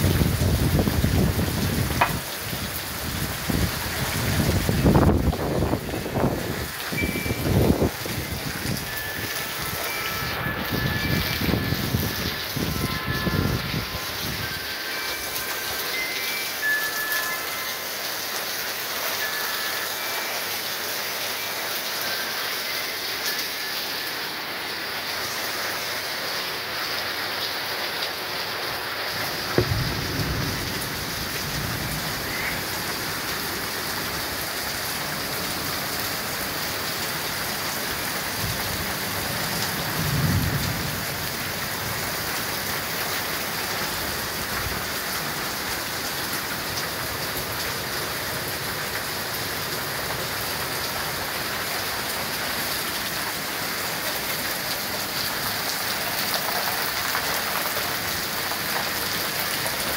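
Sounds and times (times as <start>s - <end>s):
heavy rain on street: 0.0s - 59.9s
thunder crack: 29.6s - 32.1s
low thunder rumble: 29.6s - 32.7s.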